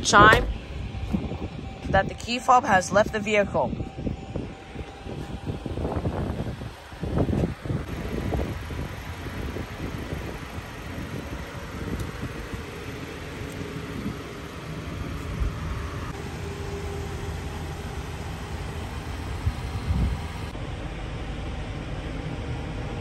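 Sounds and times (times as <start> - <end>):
car engine idling: 5.7 - 22.8.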